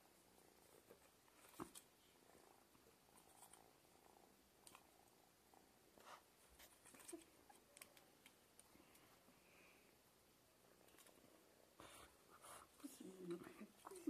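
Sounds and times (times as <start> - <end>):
kitten purring: 2.0 - 5.9.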